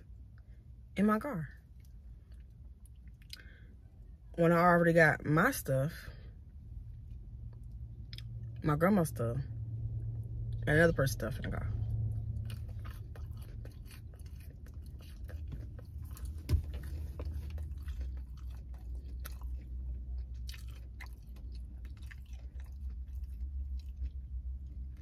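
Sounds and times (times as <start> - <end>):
steady low hum: 0.0 - 25.0
person chewing food: 1.6 - 4.3, 6.4 - 8.6, 11.8 - 25.0.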